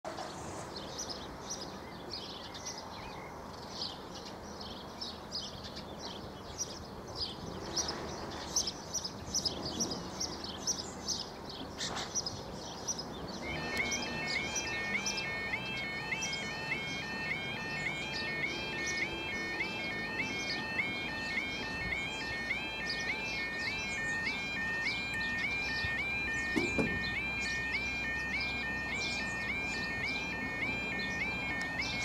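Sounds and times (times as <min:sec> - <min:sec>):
small birds chirping: 0:00.7 - 0:32.0
level crossing alarm rising tones: 0:13.4 - 0:32.0.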